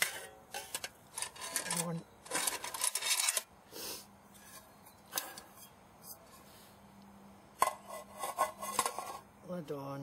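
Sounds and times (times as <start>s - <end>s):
metal pot scraping on stove: 7.6s - 9.3s.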